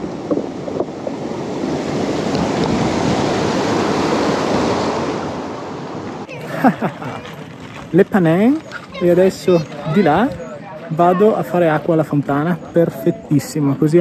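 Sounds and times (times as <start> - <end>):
wind rushing over microphone: 0.0 - 6.3.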